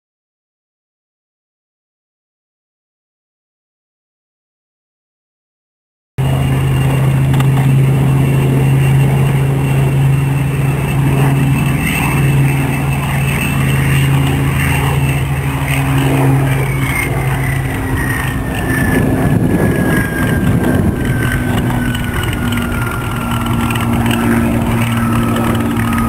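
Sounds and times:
piston aircraft engine: 0:06.2 - 0:26.0.

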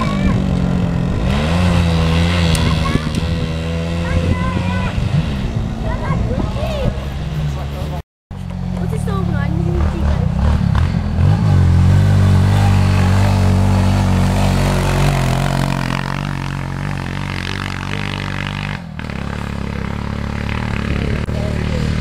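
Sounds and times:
tractor engine droning: 0:00.0 - 0:22.0.

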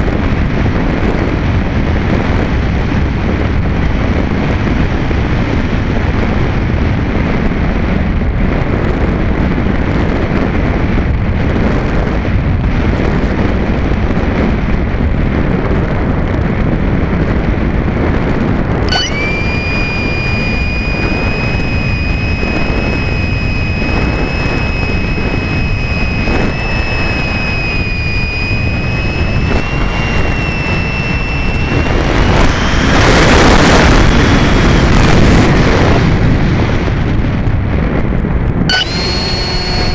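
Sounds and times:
electric motor high whine: 0:18.8 - 0:36.2, 0:38.7 - 0:39.9
air rushing over microphone: 0:18.9 - 0:37.0.

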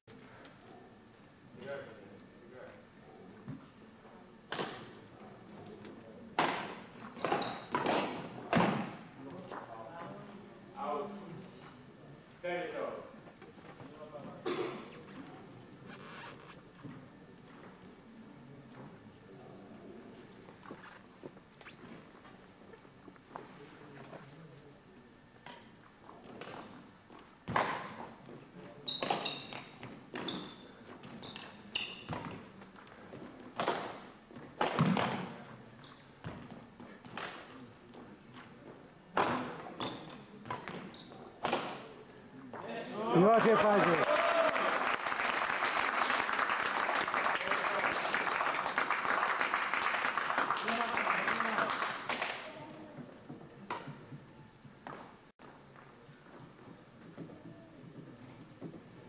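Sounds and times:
shoe squeak on court floor: 0:06.9 - 0:07.9, 0:15.8 - 0:16.6, 0:28.8 - 0:32.3, 0:39.8 - 0:41.3.

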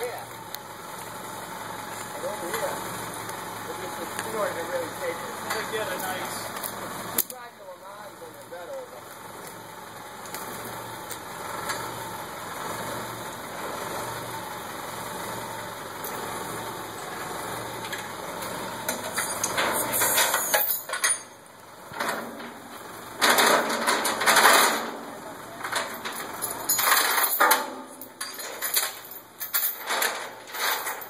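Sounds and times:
backhoe engine idling: 0:00.0 - 0:30.6
steel chains clattering: 0:19.0 - 0:21.4, 0:25.6 - 0:31.0.

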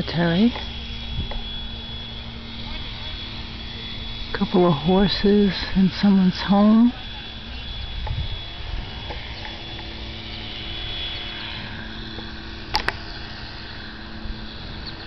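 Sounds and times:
faint steady hum: 0:00.0 - 0:15.0
wind rumbling on microphone: 0:00.0 - 0:15.0
sharp clicks: 0:12.7 - 0:13.0.

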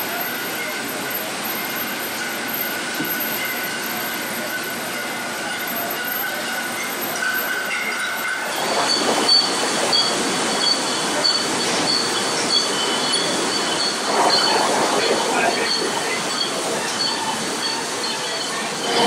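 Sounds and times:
high squealing tones: 0:10.6 - 0:19.0.

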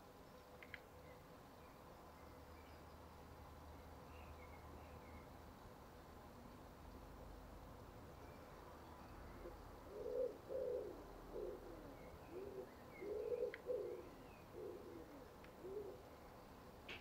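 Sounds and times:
pigeon cooing: 0:09.4 - 0:16.0.

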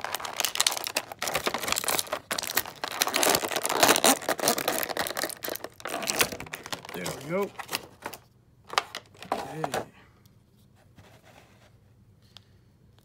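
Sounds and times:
plastic packaging crinkling: 0:00.0 - 0:09.3.

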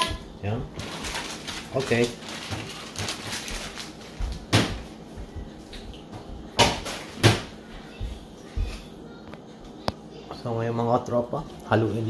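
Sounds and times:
sharp knocks in a kitchen: 0:04.2 - 0:08.7.

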